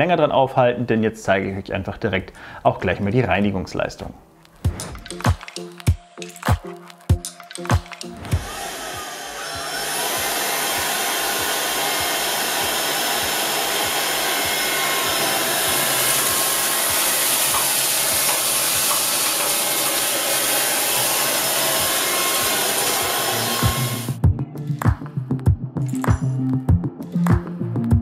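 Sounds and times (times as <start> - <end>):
stick vacuum running: 8.2 - 24.2.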